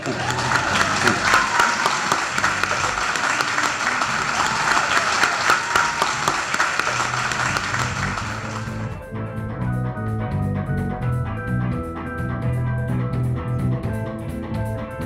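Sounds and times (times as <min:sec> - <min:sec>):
crowd applauding: 0:00.0 - 0:09.0
music with steady bass line: 0:05.9 - 0:15.0.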